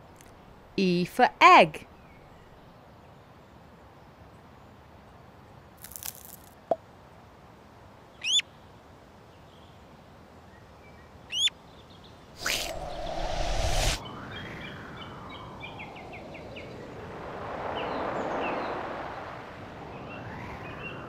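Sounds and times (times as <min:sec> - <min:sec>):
eggshell cracking: 0:05.8 - 0:06.5
loud whoosh: 0:12.4 - 0:21.0.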